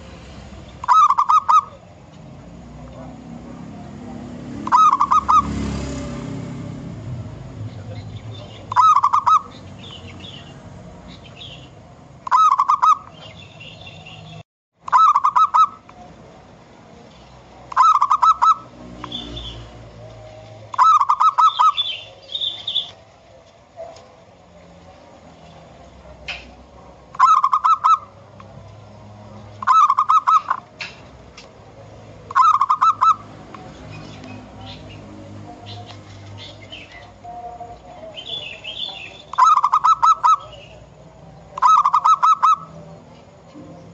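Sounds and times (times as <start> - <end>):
small birds chirping: 0.0 - 6.3, 7.5 - 43.9
dove cooing: 0.8 - 6.2, 7.9 - 9.6, 12.2 - 13.4, 14.9 - 16.1, 17.6 - 23.0, 26.1 - 28.4, 29.6 - 30.8, 32.2 - 40.9, 41.5 - 43.9.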